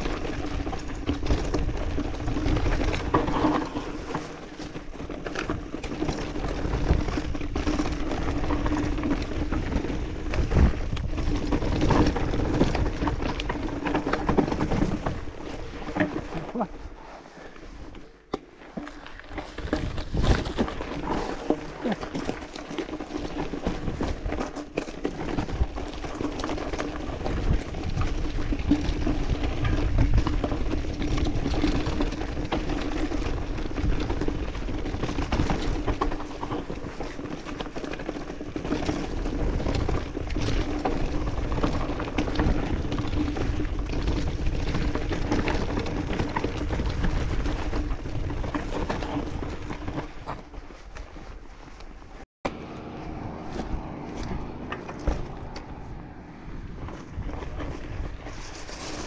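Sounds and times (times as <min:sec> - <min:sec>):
bike rattling over bumps: 0:00.0 - 0:59.0
bike tyres crunching over stones: 0:00.0 - 0:59.0.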